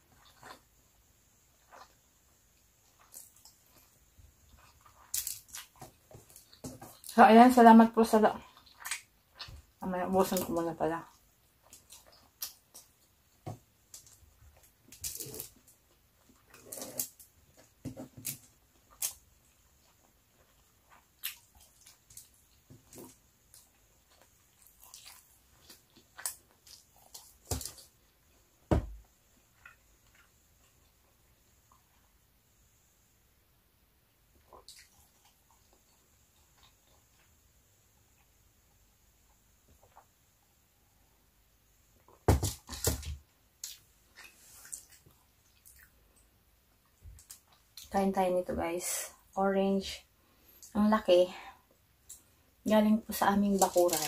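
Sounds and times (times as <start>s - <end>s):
mouth chewing with wet smacks: 18.7s - 27.9s, 34.4s - 37.4s, 43.6s - 46.0s
mouth and handling noises: 53.1s - 54.0s.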